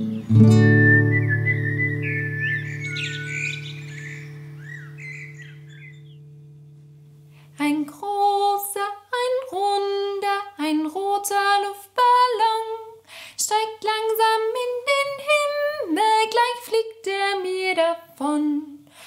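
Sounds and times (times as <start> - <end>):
woman singing unaccompanied: 7.6 - 18.9.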